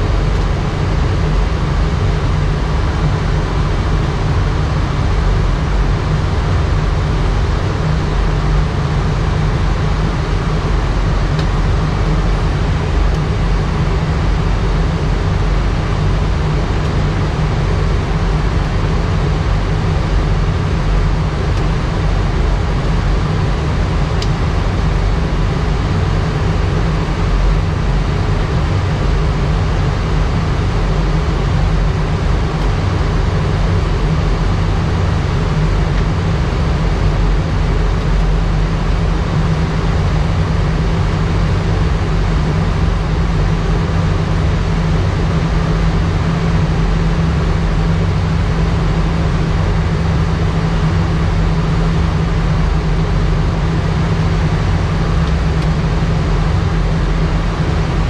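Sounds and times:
rush of air with low rumble: 0:00.0 - 0:58.0.

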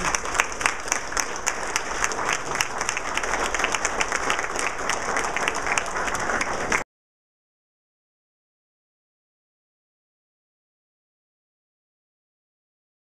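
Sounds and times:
crowd applauding: 0:00.0 - 0:06.8.

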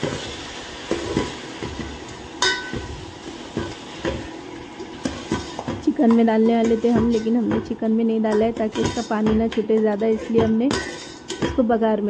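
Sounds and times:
metal spoon scraping a pot: 0:06.4 - 0:11.7.

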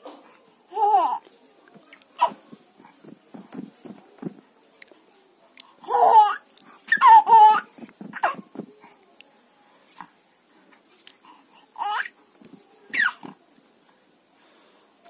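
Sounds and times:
baby babbling and laughing: 0:00.7 - 0:01.2, 0:05.8 - 0:08.4, 0:11.8 - 0:12.2.

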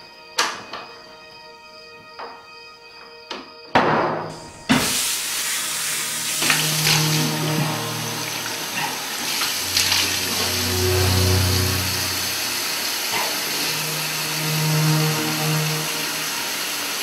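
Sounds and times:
tap water running into sink: 0:04.7 - 0:10.7.

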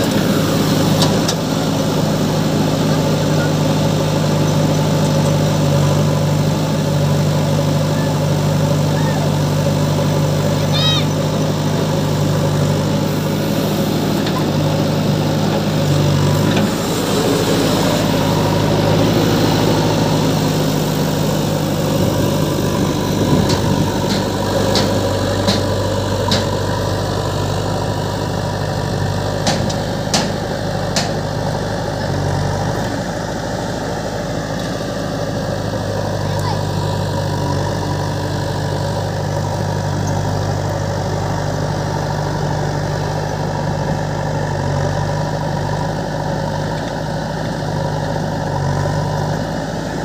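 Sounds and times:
diesel engines idling: 0:00.0 - 0:50.0
soil pouring into trailer: 0:13.2 - 0:23.2.

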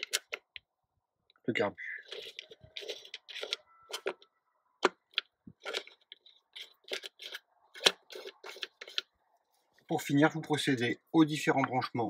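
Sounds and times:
plastic and metal clicks: 0:02.1 - 0:04.2.

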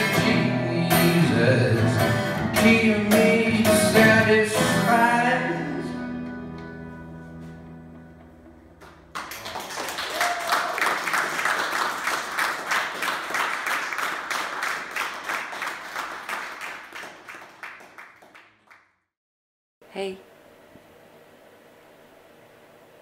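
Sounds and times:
audience applauding: 0:08.8 - 0:18.9.

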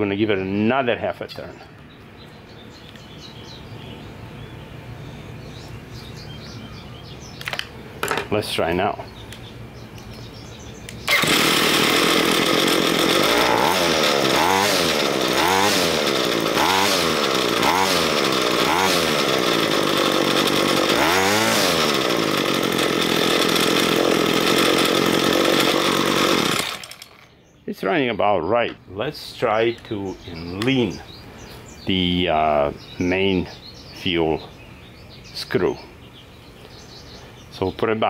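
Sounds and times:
string trimmer engine revving: 0:10.9 - 0:27.3.

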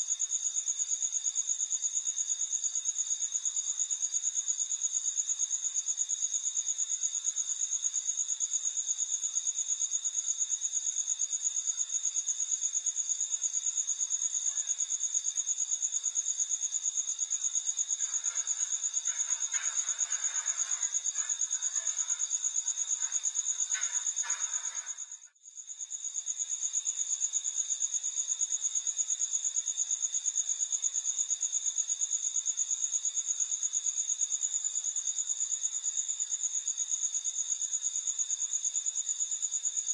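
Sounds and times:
crickets trilling: 0:00.2 - 0:32.4.

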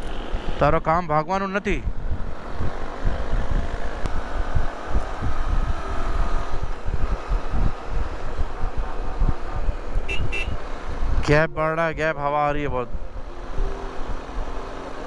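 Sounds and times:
wind buffeting microphone: 0:01.8 - 0:12.0
motorcycle engine running: 0:01.9 - 0:11.2.

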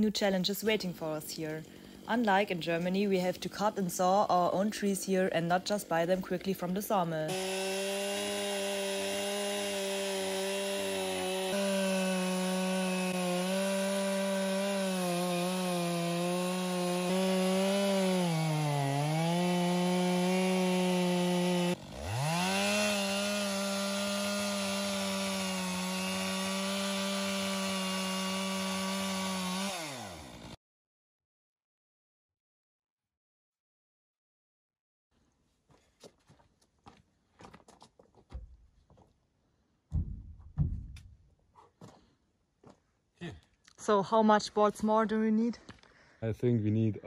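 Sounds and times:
chainsaw cutting log: 0:00.7 - 0:30.6.

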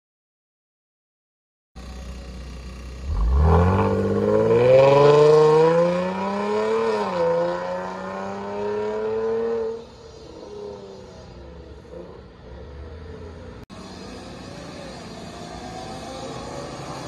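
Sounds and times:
car exhaust accelerating: 0:01.8 - 0:09.5.

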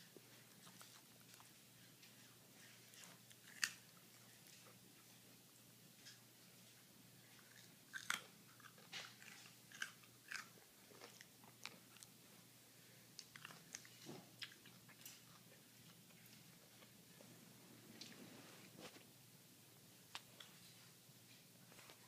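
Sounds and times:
dog crunching a carrot: 0:00.1 - 0:12.4, 0:13.1 - 0:17.0.

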